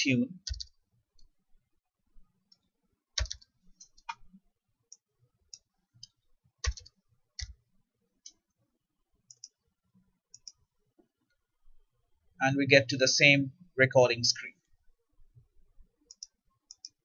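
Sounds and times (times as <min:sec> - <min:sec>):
keyboard and mouse clicks: 0:00.4 - 0:01.3, 0:02.5 - 0:07.6, 0:09.3 - 0:09.6, 0:10.3 - 0:10.6, 0:16.1 - 0:17.0.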